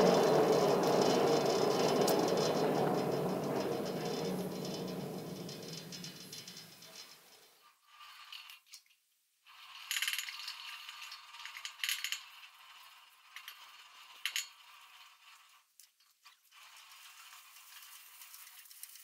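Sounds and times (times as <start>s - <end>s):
cable car metal clinking: 0.0s - 7.0s.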